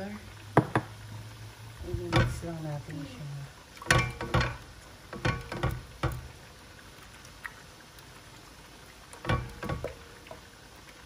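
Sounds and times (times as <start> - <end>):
spatula stirring sauce in a pan: 2.0 - 11.0
spatula scraping and knocking pan: 2.1 - 2.4, 3.9 - 4.6, 5.2 - 6.3.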